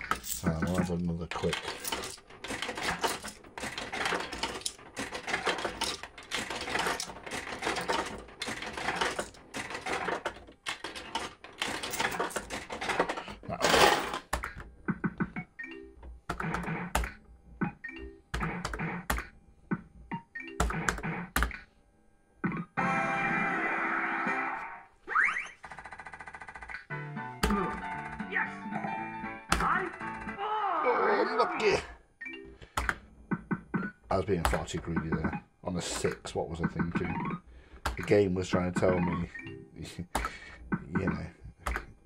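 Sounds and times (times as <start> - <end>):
fruit machine clicking and clatter: 0.0 - 14.6.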